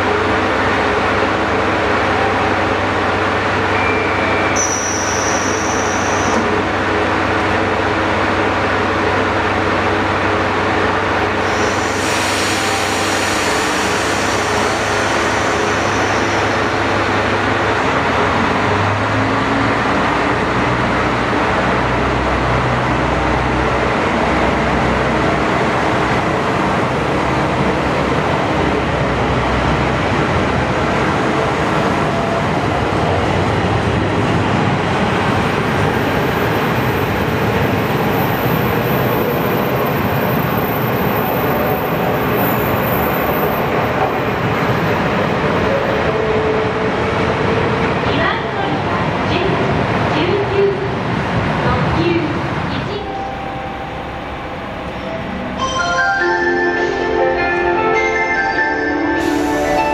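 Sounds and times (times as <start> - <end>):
train diesel engine accelerating: 0.0 - 59.9
train rail running noise: 0.0 - 59.9.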